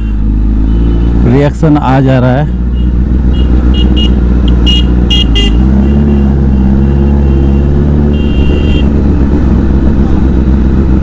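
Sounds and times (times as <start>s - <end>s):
motorcycle engine at low revs: 0.0s - 11.0s
high-pitched car horn toots: 2.8s - 6.3s, 7.2s - 9.0s.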